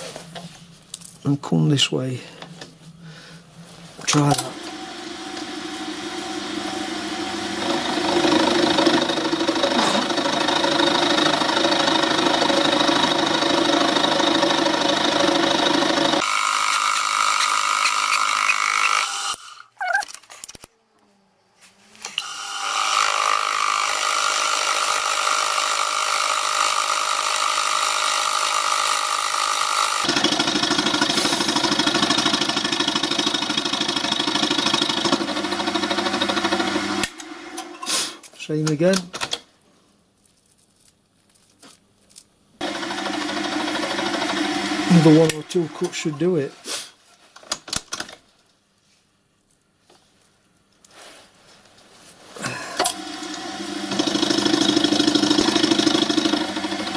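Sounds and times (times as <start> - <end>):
milling machine cutting metal: 4.1 - 19.6, 22.2 - 37.8, 52.8 - 56.9.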